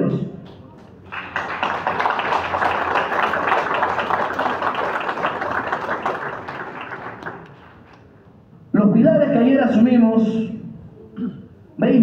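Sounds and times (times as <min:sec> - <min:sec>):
audience applauding: 0:00.9 - 0:08.0.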